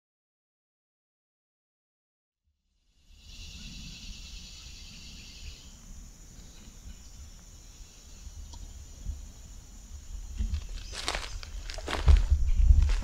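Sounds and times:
high-pitched insect chorus: 2.9 - 13.0
continuous low rumble: 3.6 - 13.0.

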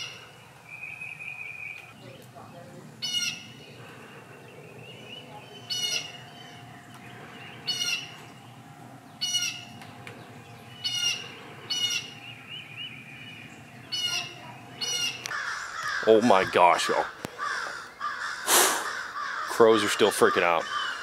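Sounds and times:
crows cawing: 0.0 - 0.3, 3.0 - 4.4, 5.6 - 9.9, 10.7 - 12.4, 13.8 - 21.0.

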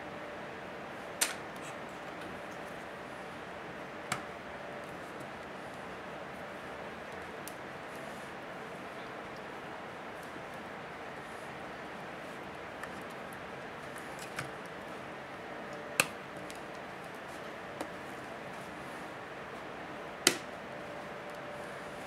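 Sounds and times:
steady background hiss: 0.0 - 22.0
plastic clicks and snaps: 16.0 - 16.8, 20.3 - 20.5.

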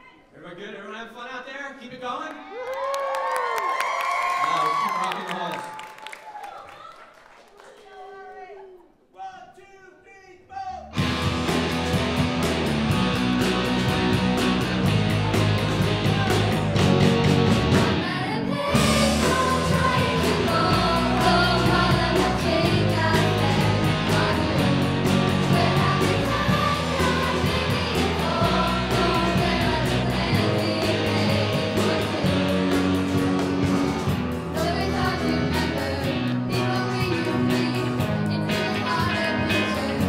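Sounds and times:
bass guitar: 10.8 - 40.0
drums: 10.8 - 40.0
electric guitars: 11.0 - 40.0
choir singing along: 16.0 - 40.0
girls singing into microphones: 17.9 - 32.8, 34.5 - 40.0.

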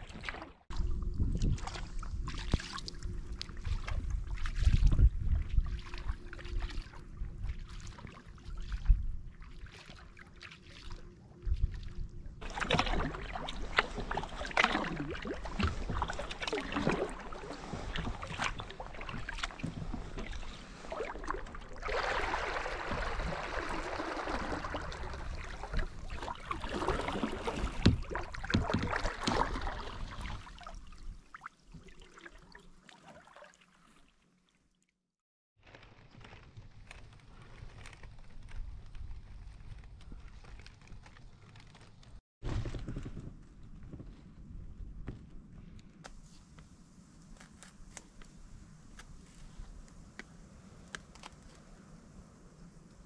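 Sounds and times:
kayak paddle splashing water: 0.0 - 34.5
rushing water: 12.4 - 34.1.

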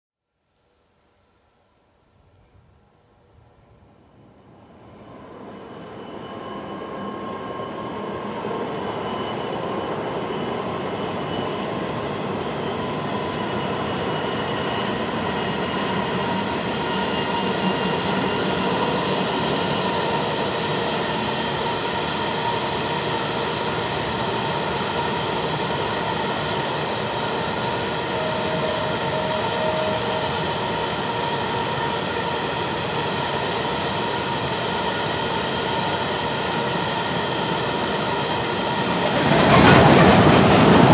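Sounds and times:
train wagons rolling on rails: 35.8 - 40.9.

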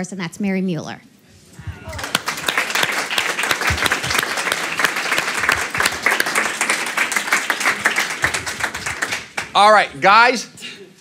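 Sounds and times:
audience applauding: 1.8 - 10.0.

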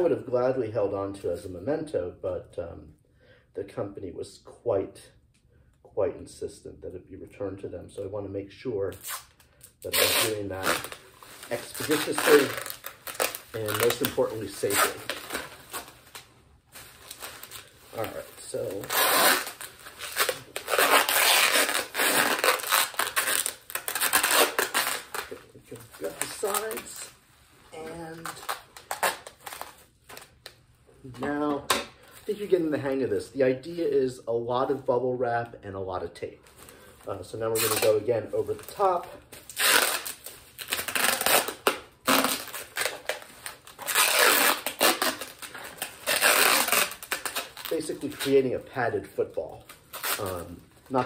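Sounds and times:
packing tape pulled off roll: 8.9 - 27.1, 28.1 - 30.6, 38.6 - 48.4, 49.7 - 50.6
bubble wrap crinkling: 8.9 - 30.6, 36.4 - 51.0.

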